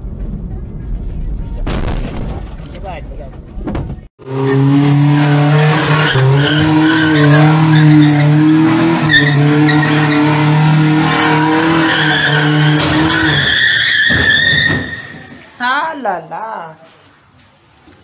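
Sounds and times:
tyres skidding and squealing: 3.9 - 16.4
truck engine at high revs: 4.2 - 14.4.

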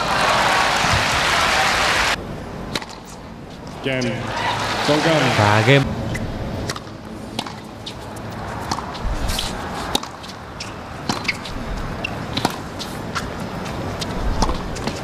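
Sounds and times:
hushed stadium crowd: 0.0 - 2.2, 3.8 - 5.9
racket hitting tennis ball: 2.7 - 3.8, 6.7 - 13.4, 14.0 - 15.0
tennis ball bouncing: 6.1 - 15.0.

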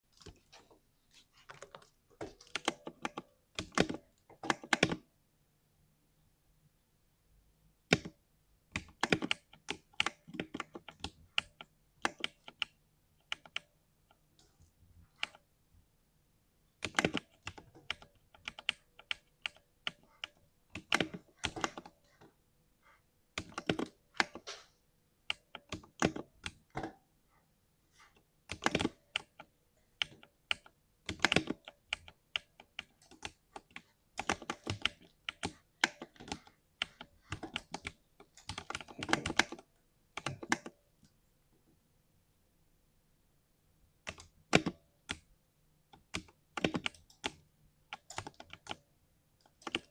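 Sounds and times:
mechanical keyboard typing: 1.4 - 5.1, 7.9 - 13.7, 16.8 - 22.2, 23.4 - 24.6, 25.3 - 27.0, 28.5 - 40.7, 44.0 - 45.3, 46.0 - 48.8, 49.4 - 49.9.

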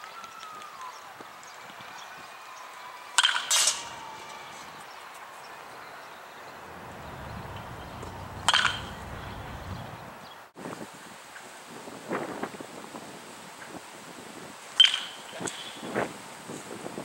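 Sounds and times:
baseball bat striking ball: 3.2 - 4.4, 6.7 - 10.1
wind rumble on microphone: 6.7 - 14.6, 15.4 - 17.0.

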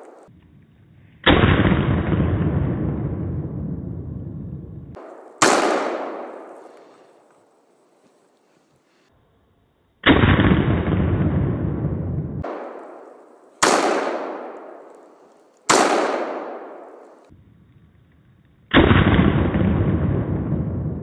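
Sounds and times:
slowed-down rifle shots: 0.0 - 0.3, 4.9 - 7.4, 10.0 - 17.3, 18.7 - 21.0.

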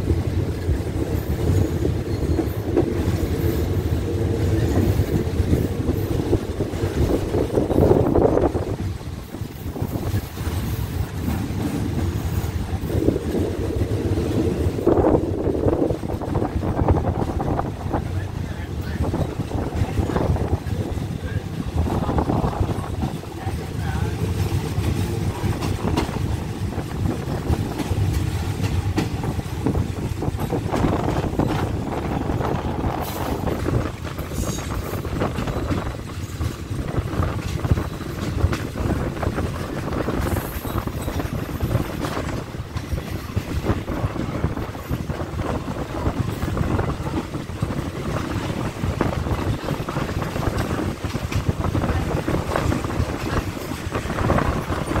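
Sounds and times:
wind rushing past: 0.0 - 18.4
train wheels rumbling on rails: 0.0 - 55.0.

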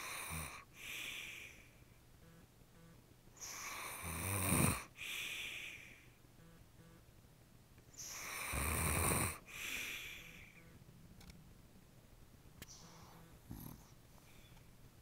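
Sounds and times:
man snoring: 0.0 - 1.4, 3.5 - 5.8, 8.1 - 10.6
breathy exhale: 0.0 - 1.8, 4.9 - 6.2, 9.4 - 10.6.

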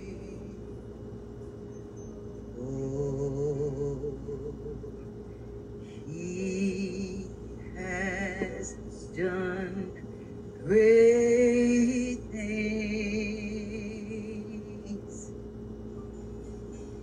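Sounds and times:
person singing worship song: 2.6 - 5.1, 5.9 - 15.3.

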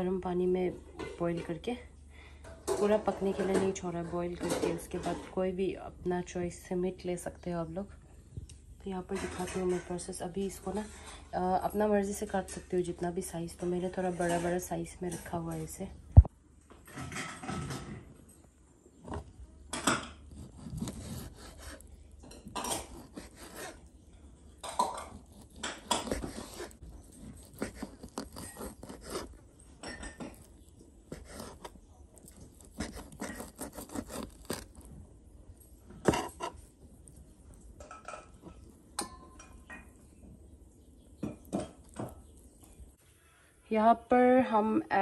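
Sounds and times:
knife scraping: 19.8 - 24.0, 24.6 - 35.0, 35.6 - 39.5.

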